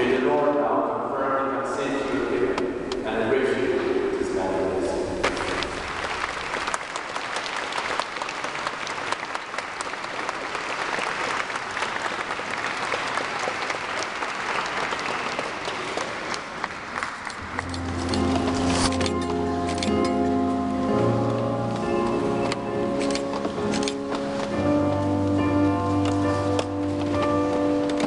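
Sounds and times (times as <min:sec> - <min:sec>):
crowd applauding: 0:05.2 - 0:19.9.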